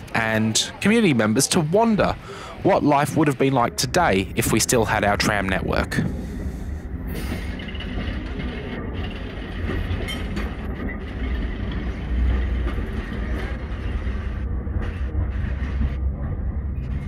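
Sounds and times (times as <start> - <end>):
tram wheels rumbling: 0.0 - 17.0.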